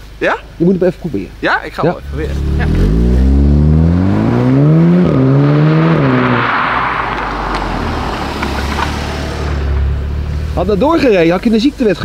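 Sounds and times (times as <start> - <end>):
car engine accelerating hard: 2.0 - 11.4.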